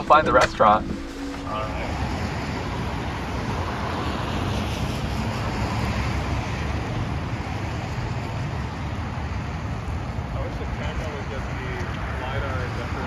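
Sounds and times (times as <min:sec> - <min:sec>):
low rumble: 0:00.0 - 0:03.1
road traffic: 0:00.0 - 0:13.0.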